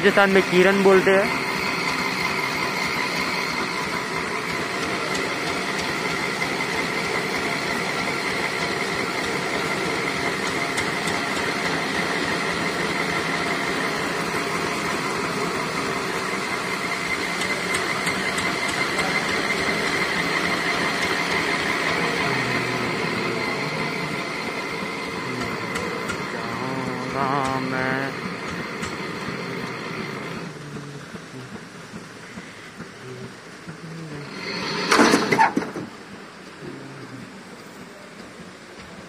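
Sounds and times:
engine-driven winch running: 0.0 - 36.4.

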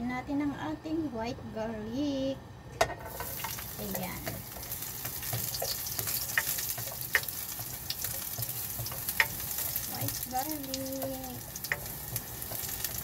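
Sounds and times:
spatula tapping pan: 2.8 - 13.0
garlic sizzling in oil: 3.0 - 13.0.

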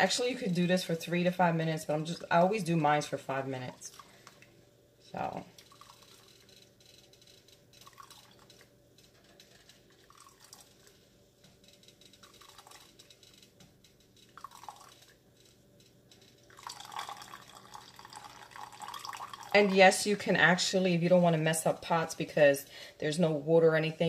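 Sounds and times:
coffee sloshing and dripping: 0.0 - 4.6, 5.2 - 13.3, 14.0 - 15.4, 16.4 - 21.2.

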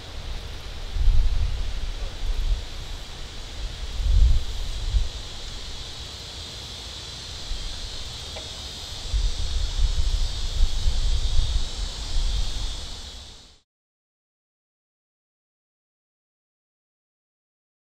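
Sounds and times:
wind buffeting microphone: 0.0 - 5.7, 9.0 - 13.2
high insect chorus: 0.0 - 13.6.

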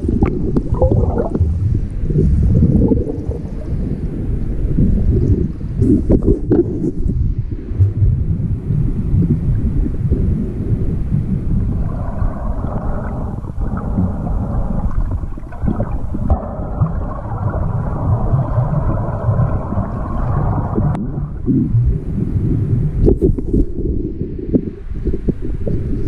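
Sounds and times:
underwater water rumble: 0.0 - 26.0.

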